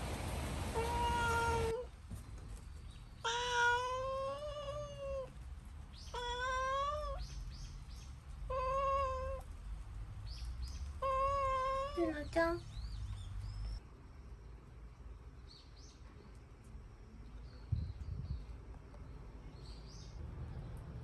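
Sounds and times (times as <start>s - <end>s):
cat meowing: 0.8s - 1.9s, 3.2s - 5.3s, 6.1s - 7.2s, 8.5s - 9.4s, 11.0s - 12.3s.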